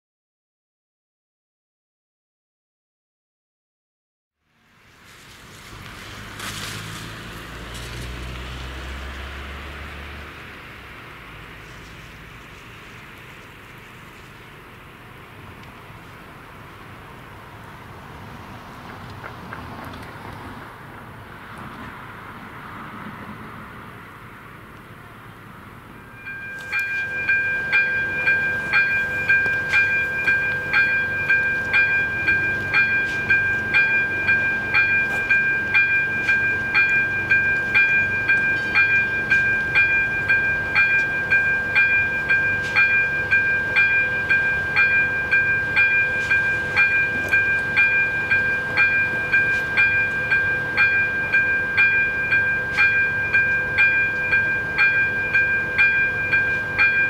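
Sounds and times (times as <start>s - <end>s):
soft outdoor road noise: 4.4s - 57.0s
level-crossing bell ringing: 26.0s - 57.0s.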